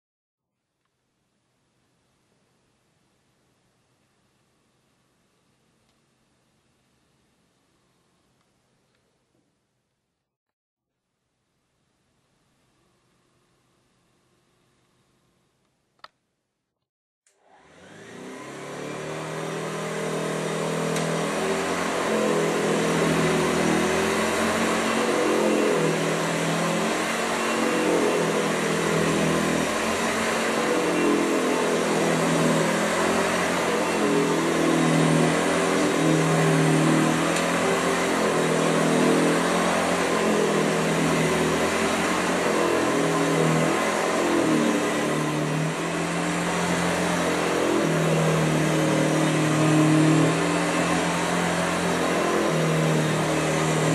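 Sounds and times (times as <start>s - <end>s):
vacuum cleaner motor running: 17.3s - 53.9s.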